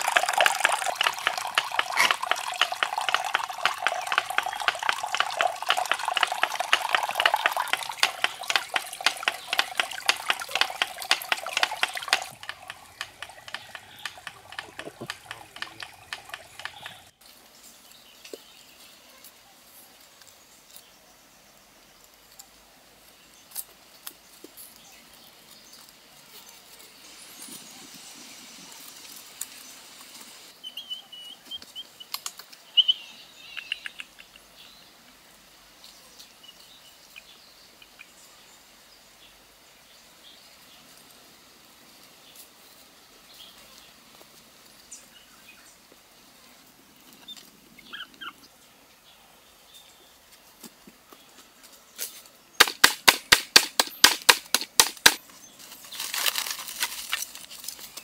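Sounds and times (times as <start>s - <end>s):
machete chopping bamboo stakes: 6.9s - 17.1s, 52.6s - 55.2s
stakes rustling in dry leaves: 55.5s - 58.0s.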